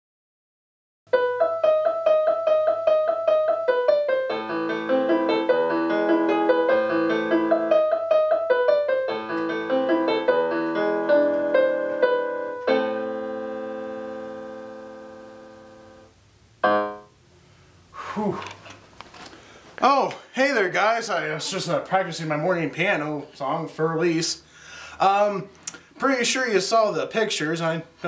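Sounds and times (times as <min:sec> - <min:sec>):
piano playing: 0:01.1 - 0:17.2.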